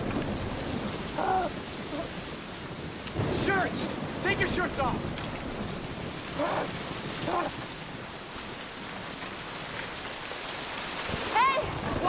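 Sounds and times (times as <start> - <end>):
rain pouring: 0.0 - 12.0
person moaning: 1.2 - 2.1, 6.4 - 7.5.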